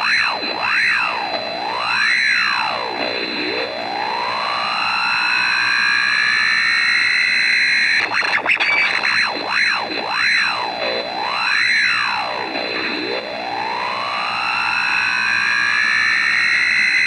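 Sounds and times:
radio interference whistles: 7.8 - 10.0
steady high tone: 8.0 - 9.5
radio hiss: 8.0 - 11.0.

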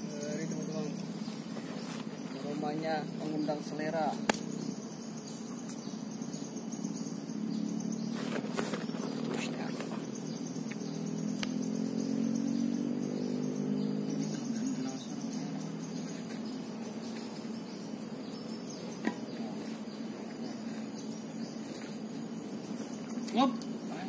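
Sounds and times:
high-pitched insect drone: 0.0 - 24.0
sharp click: 4.2 - 4.5.

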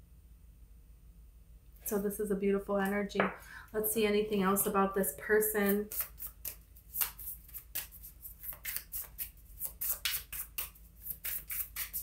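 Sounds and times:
cards being shuffled: 5.7 - 12.0.

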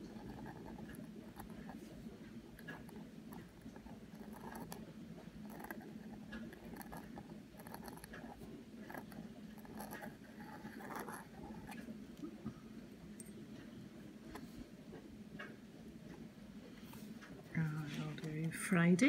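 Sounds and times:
pen nib scratching on paper: 0.0 - 11.9
steady low hum: 0.0 - 19.0.

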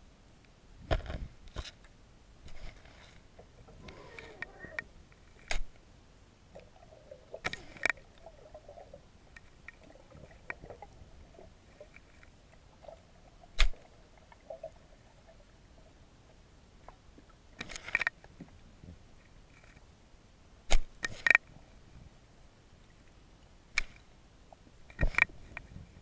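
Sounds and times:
faint rubbing and scraping: 0.8 - 5.8, 6.6 - 19.9.

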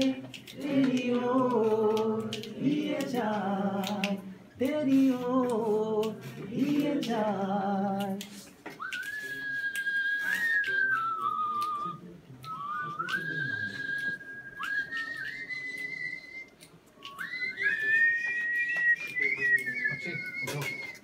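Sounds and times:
man whistling a melody: 8.8 - 21.0.

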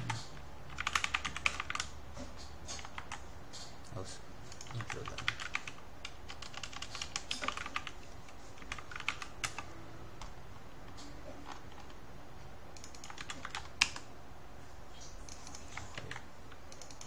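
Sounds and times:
computer keyboard typing: 0.0 - 2.0, 2.7 - 3.2, 4.5 - 12.0, 12.7 - 14.1, 15.2 - 17.0.

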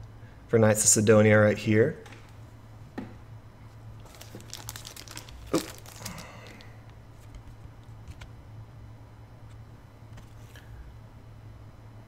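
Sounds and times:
packaging rustling and crinkling: 4.0 - 8.2.

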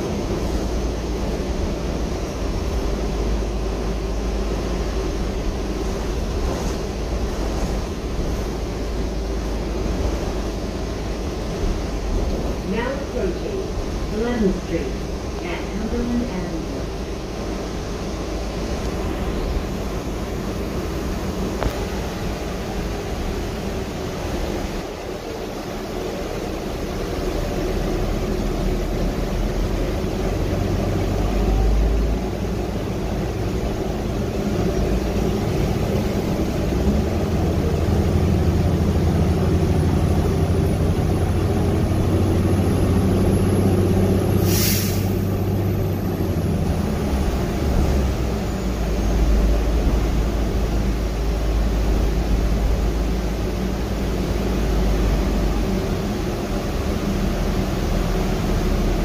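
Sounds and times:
bus interior drone: 0.0 - 59.0
brief sharp hiss: 44.4 - 45.3.

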